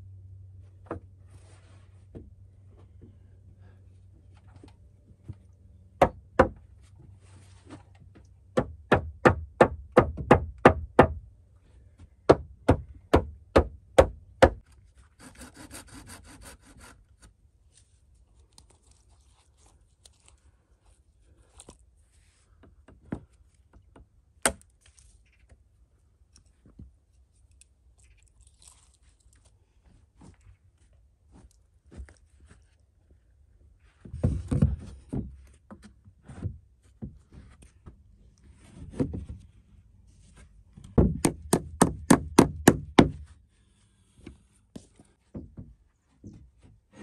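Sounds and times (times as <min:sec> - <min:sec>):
rasping scrape: 0:15.0 - 0:17.2
hammer driving nails into wood: 0:41.0 - 0:43.2
planks knocking: 0:41.0 - 0:43.2.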